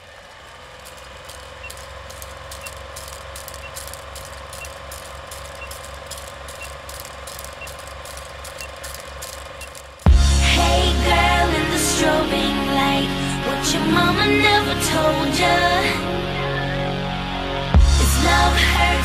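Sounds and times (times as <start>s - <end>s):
film projector clatter and hum: 0.0s - 10.3s
short faint beeps: 1.6s - 9.9s.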